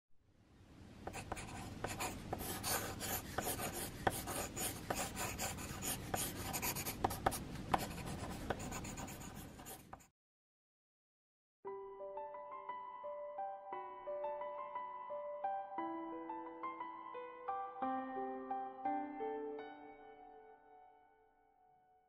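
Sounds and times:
pencil scratching on paper: 1.1 - 10.1.

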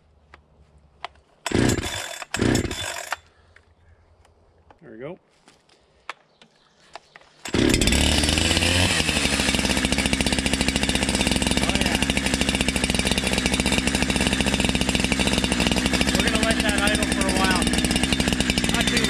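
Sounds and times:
chainsaw starting and idling: 1.4 - 3.5, 7.3 - 19.0.

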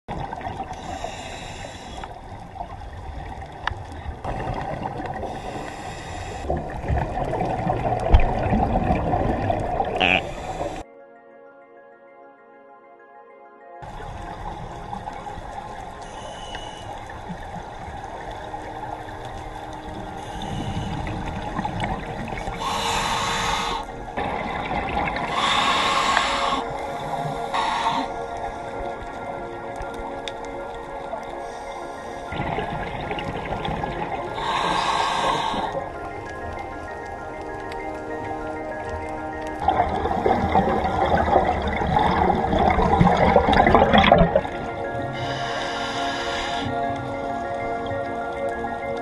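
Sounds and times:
underwater gurgling and bubbles: 0.0 - 10.8, 13.8 - 49.0
low underwater rumble: 0.1 - 10.8, 13.8 - 49.0
diver exhaling bubbles: 4.2 - 10.8, 39.6 - 45.2.

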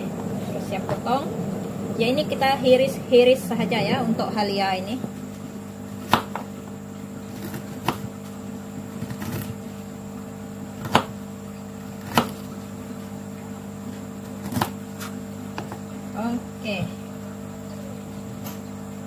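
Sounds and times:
low hum: 0.0 - 5.9.

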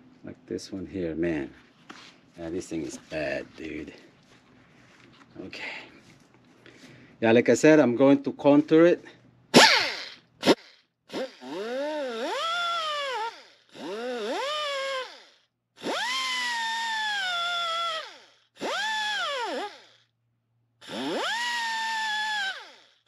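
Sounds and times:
die grinder whining: 9.6 - 20.0, 20.8 - 23.0.

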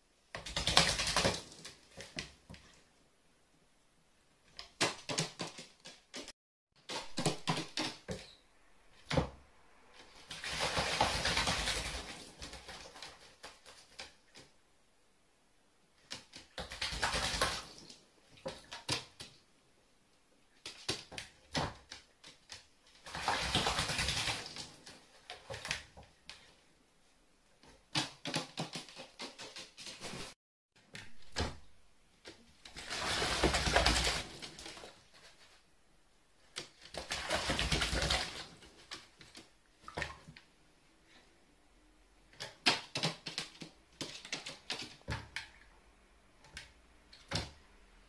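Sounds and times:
crow flapping wings: 0.4 - 1.8, 10.3 - 14.1, 23.1 - 24.8, 32.8 - 35.4, 36.9 - 39.0
water splashing: 10.0 - 13.7, 23.0 - 25.0, 32.7 - 35.0, 37.0 - 39.2.

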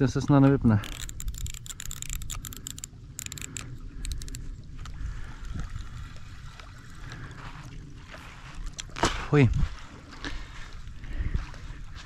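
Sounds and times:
wind buffeting microphone: 0.0 - 12.0
fishing reel ticking: 0.8 - 7.2.

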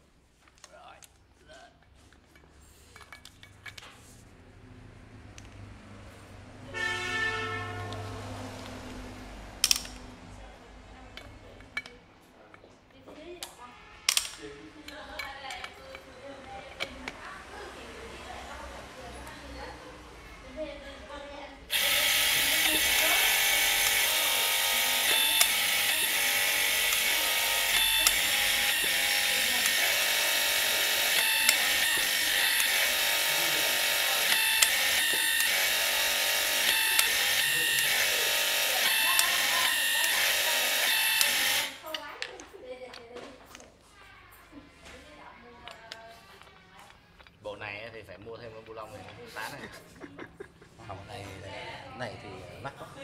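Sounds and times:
sharp metallic click: 9.6 - 10.1
torque wrench click: 9.6 - 10.1, 21.7 - 42.1
hydraulic pump humming: 21.7 - 42.0.

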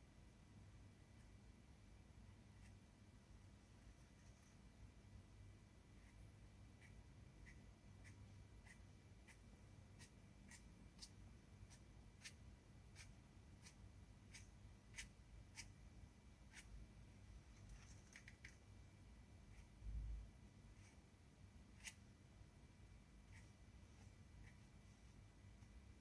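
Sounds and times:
brush strokes on paper: 6.8 - 15.7, 20.7 - 21.1, 23.2 - 25.8.

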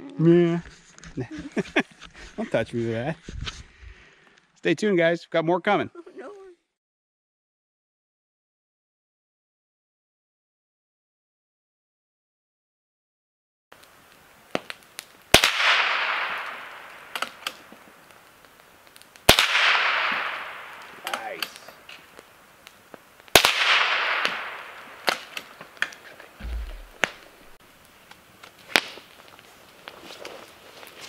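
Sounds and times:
rifle shots echoing: 15.4 - 17.4, 19.3 - 20.9, 23.4 - 25.3, 26.4 - 27.6.

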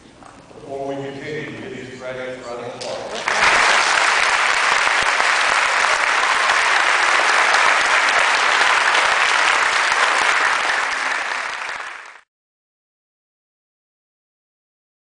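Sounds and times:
audience applauding: 3.1 - 12.3.

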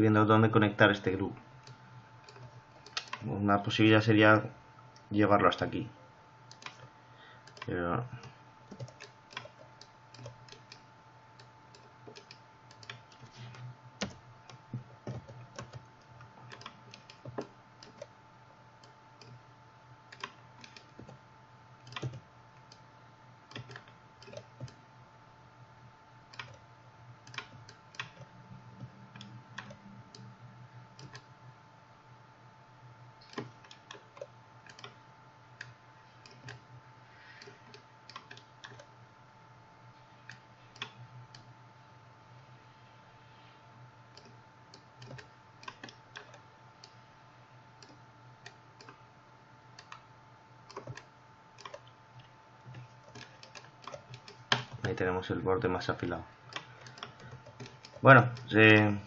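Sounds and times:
faint steady hum: 0.0 - 59.0
mouse and keyboard clicks: 2.3 - 3.2, 52.7 - 55.0.

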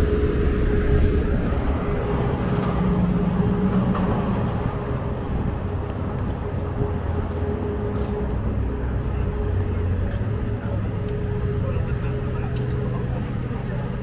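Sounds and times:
city traffic rumble: 0.0 - 14.0
constant hum: 0.0 - 14.0
low engine drone: 0.0 - 14.0.

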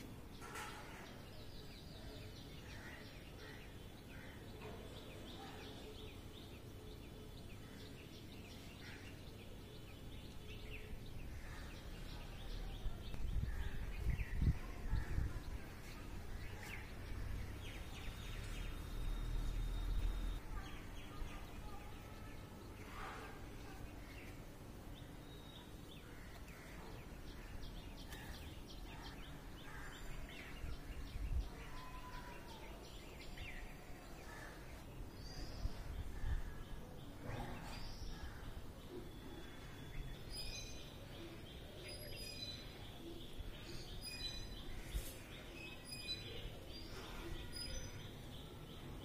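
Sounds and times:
distant bird chirps: 0.0 - 23.8.

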